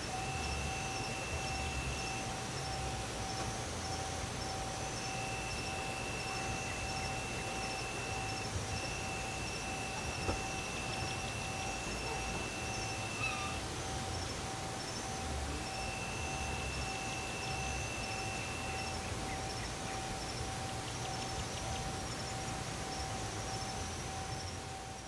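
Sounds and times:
insects chirping: 0.0 - 25.0
low steady tone: 0.0 - 25.0
steady hiss: 0.0 - 25.0
whistle-like tone: 0.1 - 14.0, 15.5 - 19.1.

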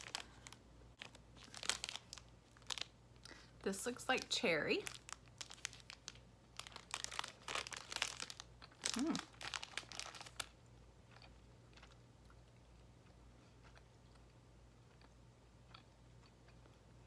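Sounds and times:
plastic pouch crinkling: 0.0 - 3.4, 4.0 - 10.6.

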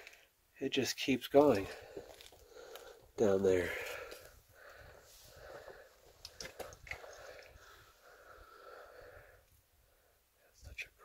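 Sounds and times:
person breathing: 1.6 - 10.3.

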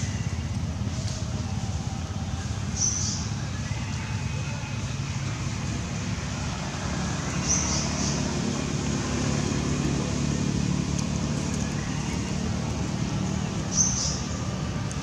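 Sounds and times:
low rumble of road traffic: 0.0 - 15.0.

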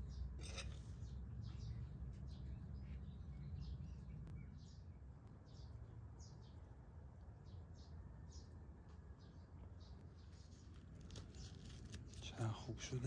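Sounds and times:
small bird chirping: 9.2 - 12.2.

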